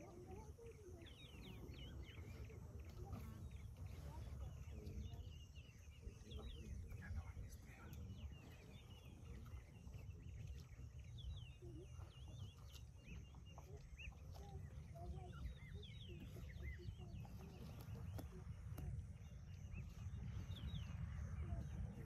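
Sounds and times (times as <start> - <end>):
small birds chirping: 0.0 - 22.0
steady low rumble: 0.0 - 22.0.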